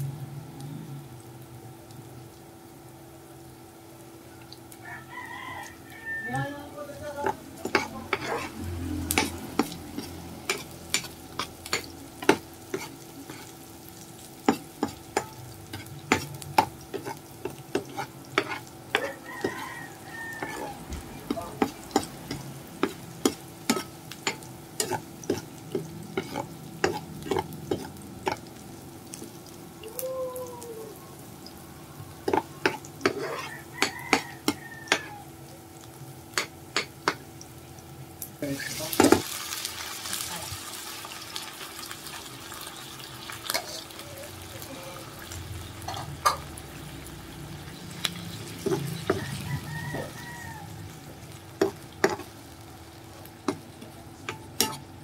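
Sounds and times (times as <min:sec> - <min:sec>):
onions sizzling in oil: 0:00.0 - 0:55.0
metal spoon scraping pan: 0:07.2 - 0:13.6, 0:14.5 - 0:28.5, 0:32.2 - 0:35.2, 0:51.6 - 0:52.3, 0:54.3 - 0:54.9.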